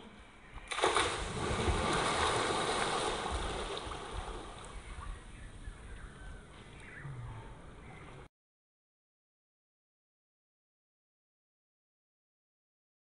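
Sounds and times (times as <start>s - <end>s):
person splashing into pool: 0.7s - 4.7s
churning water: 0.7s - 5.0s.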